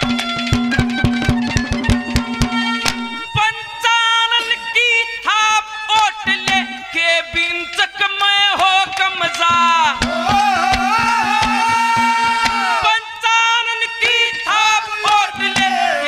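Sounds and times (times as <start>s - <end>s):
hand drum strikes: 0.0s - 3.2s, 6.3s - 6.7s, 9.4s - 12.8s, 15.4s - 16.0s
man singing: 3.3s - 16.0s.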